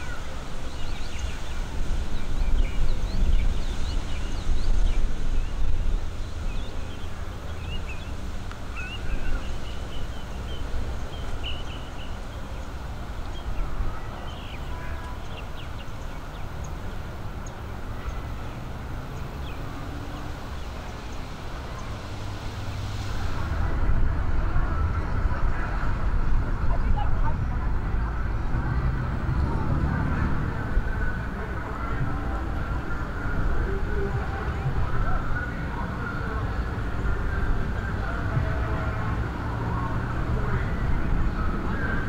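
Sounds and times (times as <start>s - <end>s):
birds chirping: 0.0s - 23.4s
wind rumbling on microphone: 0.0s - 42.0s
loud rushing noise: 18.6s - 35.3s.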